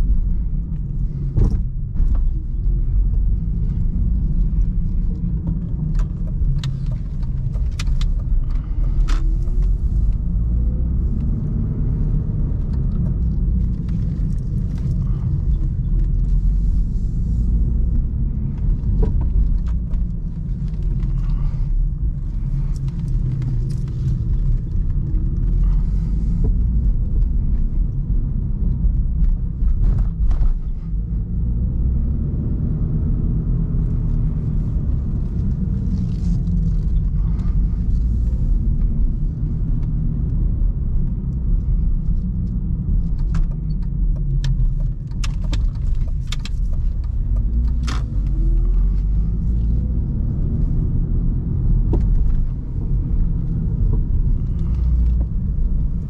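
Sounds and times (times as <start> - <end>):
car engine rumble from cabin: 0.0 - 56.0
sharp clicks and knocks: 5.2 - 10.3, 42.4 - 48.7.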